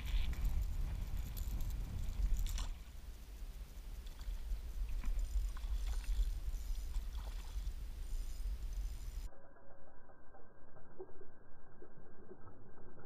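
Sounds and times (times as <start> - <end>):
wind rumbling on microphone: 0.0 - 9.3.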